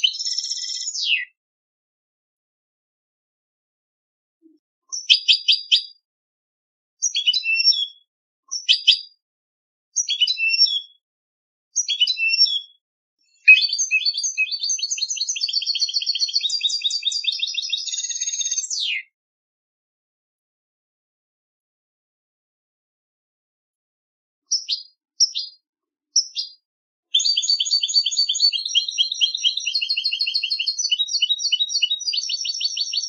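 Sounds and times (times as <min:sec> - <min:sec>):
goldfinch singing: 0:00.0 - 0:01.2, 0:04.9 - 0:06.0, 0:07.0 - 0:09.1, 0:10.0 - 0:10.9, 0:11.8 - 0:12.7, 0:13.3 - 0:19.0, 0:24.5 - 0:25.6, 0:26.2 - 0:26.6, 0:27.2 - 0:33.0.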